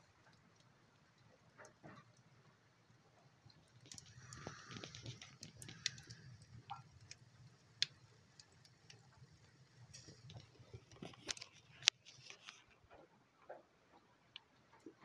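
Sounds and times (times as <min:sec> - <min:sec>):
wood fire crackling: 0:00.0 - 0:13.1.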